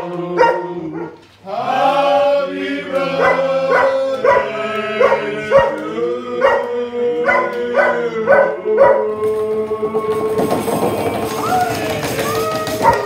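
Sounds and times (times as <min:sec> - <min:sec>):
dog barking and yipping: 0:00.3 - 0:01.2, 0:03.1 - 0:09.1, 0:12.8 - 0:13.0
dog howling: 0:03.1 - 0:09.1, 0:11.3 - 0:13.0.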